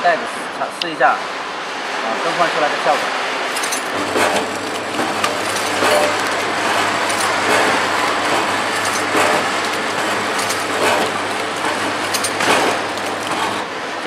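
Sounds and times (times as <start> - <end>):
packing machine humming: 3.0 - 14.0
machine clacking: 3.5 - 13.7.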